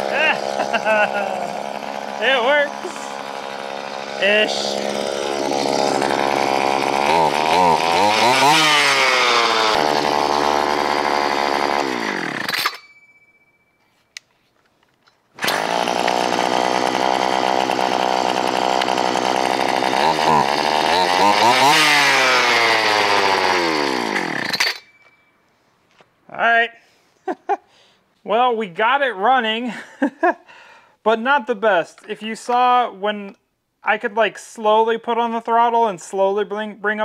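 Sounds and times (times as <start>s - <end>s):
chainsaw engine revving: 0.0s - 12.8s, 15.4s - 24.9s.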